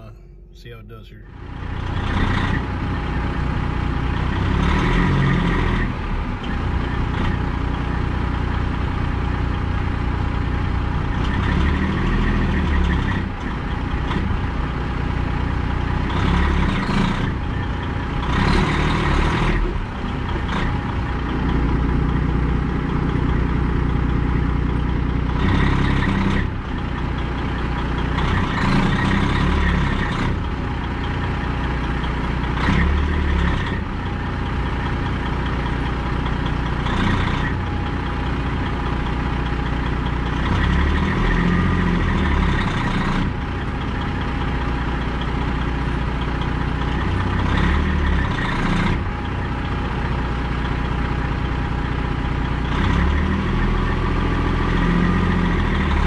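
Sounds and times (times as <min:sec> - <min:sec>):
truck diesel engine revving: 0:00.0 - 0:56.0.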